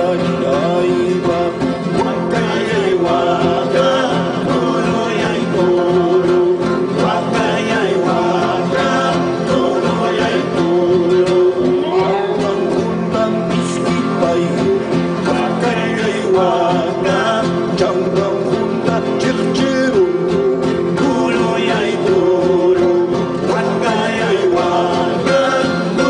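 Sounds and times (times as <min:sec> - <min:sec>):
acoustic guitars plucking and strumming: 0:00.0 - 0:26.0
man singing wavering melody: 0:10.6 - 0:26.0.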